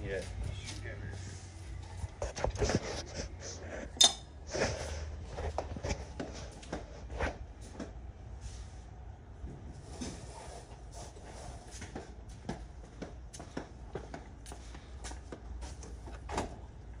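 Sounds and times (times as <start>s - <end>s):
metal tools clinking and knocking: 4.0s - 4.3s.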